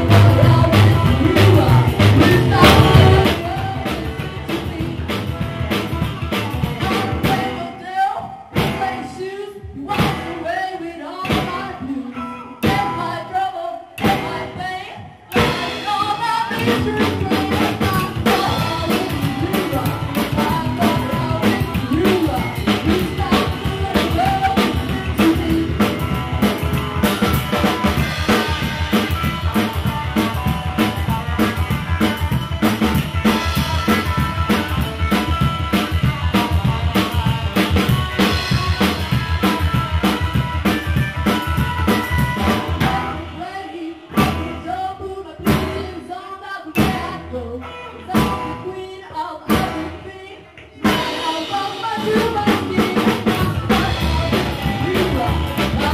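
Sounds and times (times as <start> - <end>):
upright double bass: 0.0 - 7.4, 53.3 - 55.9
drum kit fast beat: 0.0 - 7.6, 15.3 - 43.4, 50.8 - 55.9
electric guitar: 0.0 - 55.9.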